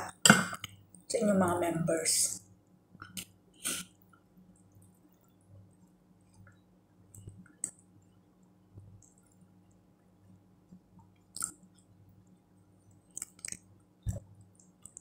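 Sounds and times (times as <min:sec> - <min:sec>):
person chewing: 0:11.2 - 0:11.8, 0:13.1 - 0:15.0.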